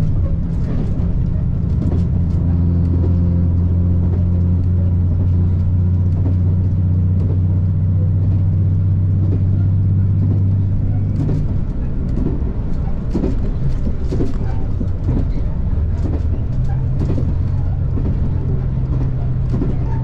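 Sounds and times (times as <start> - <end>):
diesel railcar engine droning: 0.0 - 20.0
carriage rattling clicks and knocks: 8.2 - 20.0.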